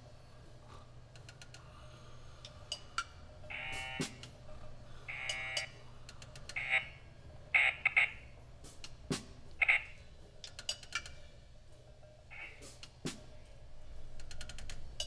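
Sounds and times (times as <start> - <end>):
electronic buzzer: 3.5 - 4.2, 5.1 - 5.7.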